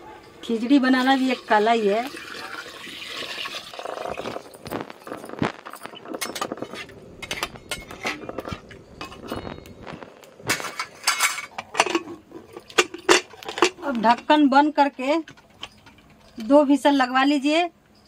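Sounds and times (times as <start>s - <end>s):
ladle clinking and scraping pot: 2.2s - 16.5s
metal lid clatter: 4.6s - 9.6s, 10.4s - 16.5s.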